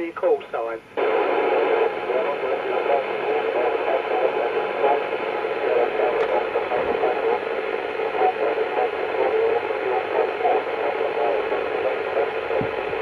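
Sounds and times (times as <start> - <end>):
radio static hiss: 0.0 - 13.0
weak distant radio station: 0.0 - 13.0.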